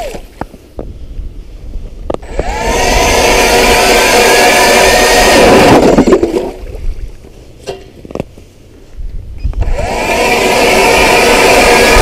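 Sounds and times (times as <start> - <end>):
ice auger motor whining: 2.2 - 6.4, 9.6 - 12.0.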